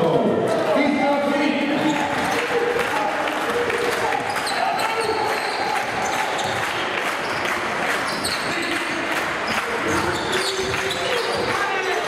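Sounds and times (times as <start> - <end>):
crowd murmur: 0.0 - 12.0
shoe squeaks: 3.6 - 8.8, 9.5 - 11.9.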